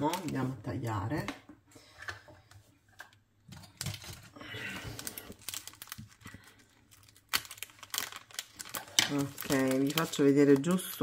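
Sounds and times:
plastic bag crinkling: 0.0 - 0.8, 3.6 - 11.0.

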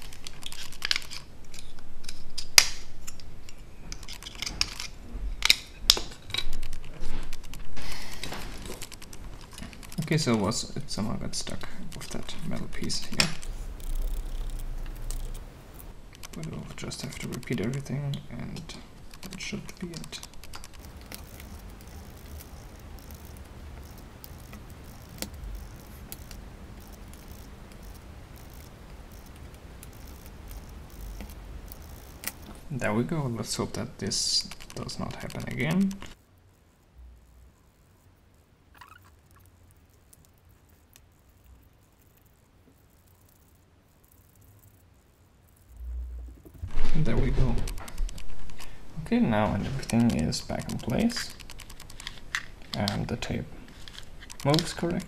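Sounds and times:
low hum: 10.6 - 17.5, 18.2 - 38.4, 41.2 - 49.9
plastic clicks and snaps: 11.9 - 32.6, 47.5 - 48.8, 49.7 - 53.1
plastic sliding and rustling: 46.6 - 55.0.

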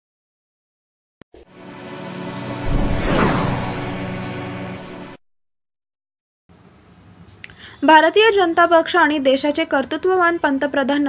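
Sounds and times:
news intro music chord: 1.5 - 5.2.

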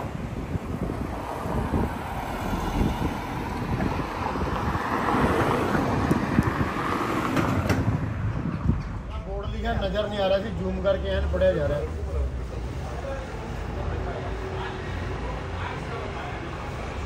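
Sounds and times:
wind buffeting microphone: 0.0 - 9.1.

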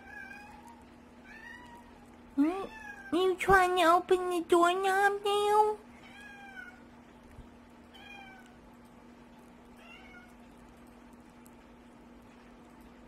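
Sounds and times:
cat meowing softly: 0.0 - 3.2, 6.0 - 6.9, 7.9 - 8.6, 9.8 - 10.4
faint steady hum: 0.0 - 13.0.

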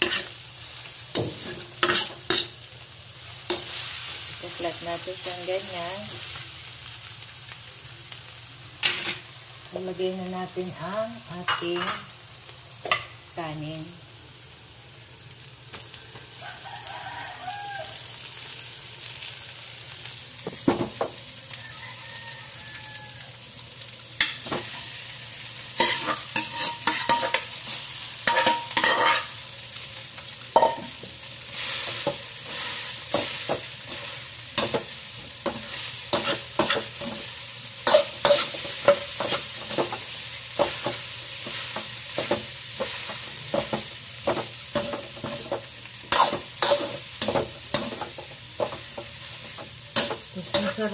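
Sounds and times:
metal spatula scraping a wok: 0.0 - 2.6, 25.7 - 29.4, 31.5 - 50.9
food sizzling in a wok: 0.0 - 50.9.

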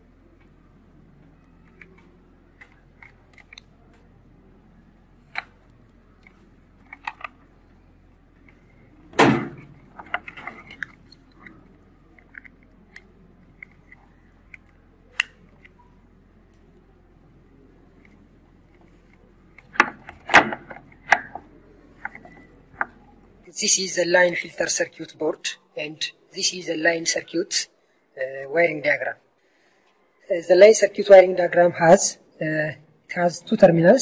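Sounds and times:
plastic connectors clicking: 1.4 - 4.1, 5.2 - 7.4.

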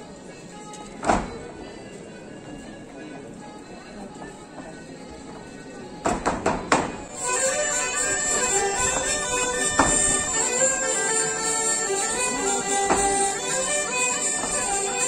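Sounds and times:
folk band with bagpipes: 0.0 - 15.0
sharp knocks: 6.0 - 7.0, 9.8 - 10.2, 12.9 - 13.2.

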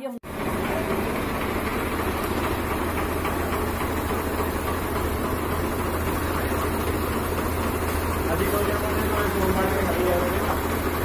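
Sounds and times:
tractor engines humming: 0.3 - 11.0.

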